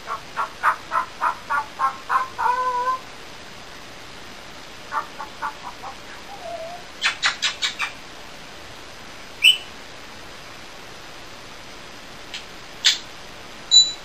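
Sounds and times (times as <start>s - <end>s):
parrot high chirp: 0.0s - 3.0s, 4.9s - 8.0s, 9.4s - 9.7s, 12.3s - 13.0s, 13.7s - 14.0s.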